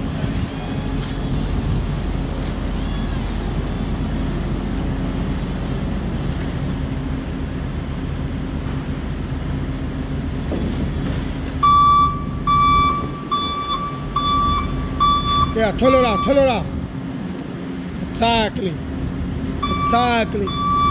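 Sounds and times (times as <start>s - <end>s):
electric forklift humming: 0.0s - 20.9s
forklift backup alarm beeping: 11.6s - 16.8s, 19.6s - 20.9s.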